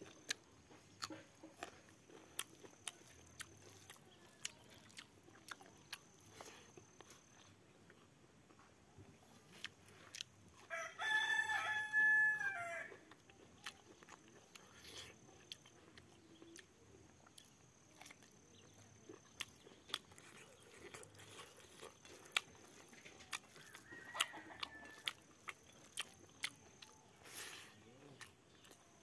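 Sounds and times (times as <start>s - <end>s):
person eating rice by hand: 0.0s - 29.0s
rooster crowing: 10.6s - 13.0s, 23.5s - 25.3s.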